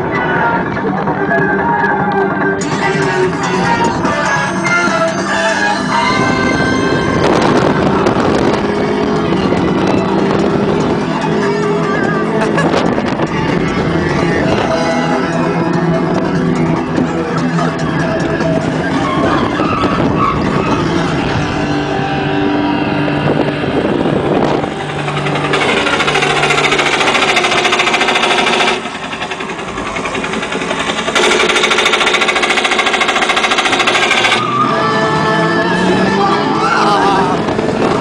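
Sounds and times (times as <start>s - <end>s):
ride and theme audio: 0.0s - 38.0s
roller coaster mechanical rattle: 5.0s - 21.9s, 23.7s - 34.8s.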